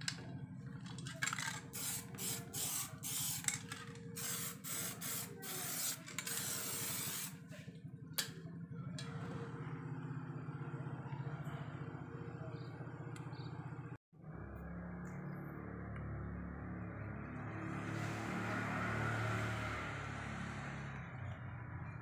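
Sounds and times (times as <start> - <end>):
spray paint can hissing: 1.2 - 7.4.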